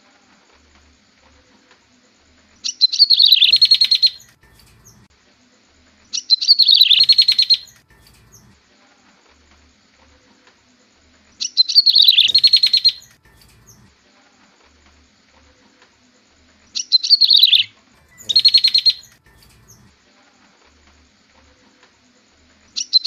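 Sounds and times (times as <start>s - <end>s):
bird song trill: 2.6s - 5.1s, 6.1s - 8.6s, 11.4s - 13.9s, 16.7s - 19.9s, 22.7s - 23.0s.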